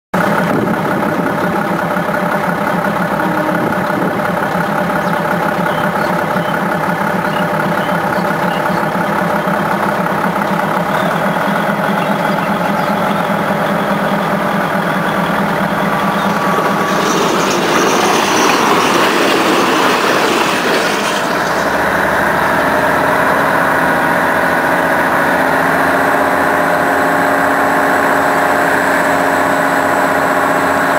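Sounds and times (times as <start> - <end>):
diesel railcar engine drone: 0.1 - 30.9
loud rushing noise: 15.3 - 23.3.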